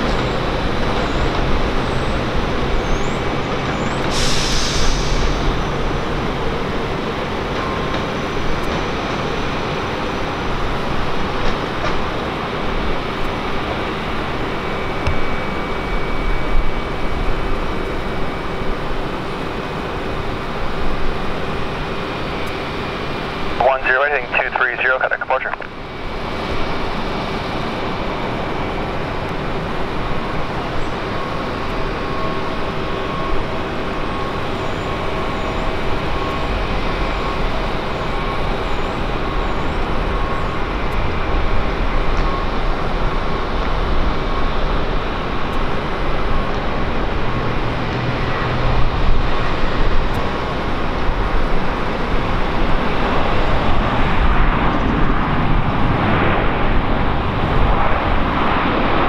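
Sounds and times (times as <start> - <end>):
jet engines rushing: 0.0 - 59.0
faint high whine: 14.1 - 27.0.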